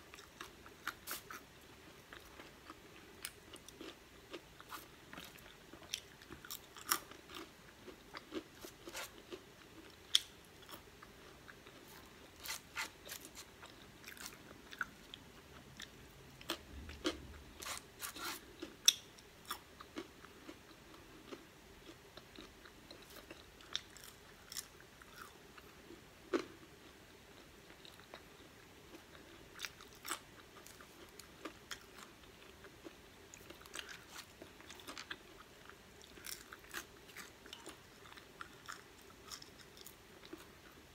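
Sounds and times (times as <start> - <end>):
person eating crunchy fries: 0.1 - 40.8.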